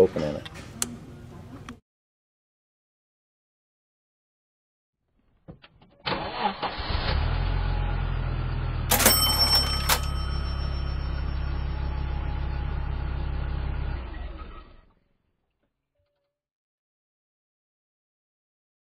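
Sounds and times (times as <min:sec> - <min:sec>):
car engine starting and idling: 0:06.0 - 0:15.0.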